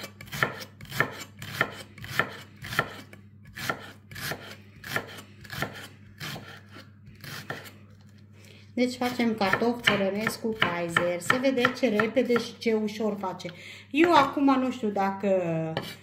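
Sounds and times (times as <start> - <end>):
knife slicing onions on a board: 0.0 - 7.9, 9.0 - 12.6, 15.7 - 16.0.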